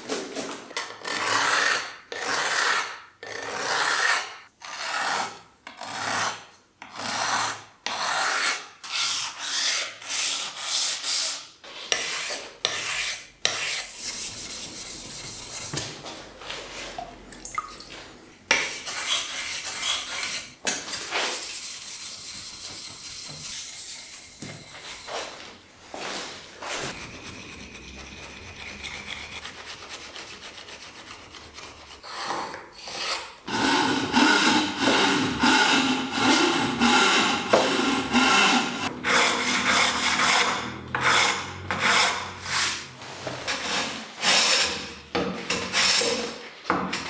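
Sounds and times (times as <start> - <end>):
stone scraping on metal plate: 26.7 - 33.3.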